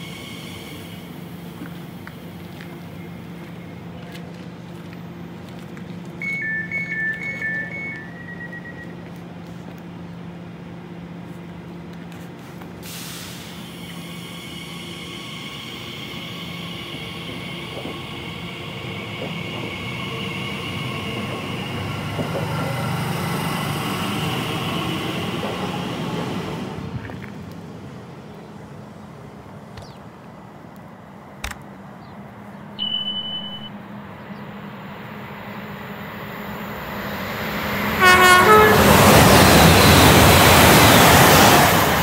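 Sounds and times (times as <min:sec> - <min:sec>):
train hum: 0:00.0 - 0:42.0
two-tone door-closing beeps: 0:06.2 - 0:09.0, 0:32.8 - 0:33.7
brakes releasing air hiss: 0:12.4 - 0:20.8.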